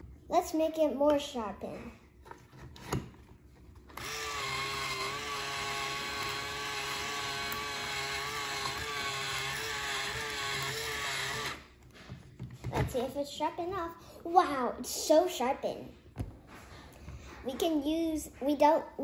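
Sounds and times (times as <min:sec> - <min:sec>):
electric pencil sharpener grinding: 0:03.9 - 0:11.7
motor hum: 0:03.9 - 0:12.0.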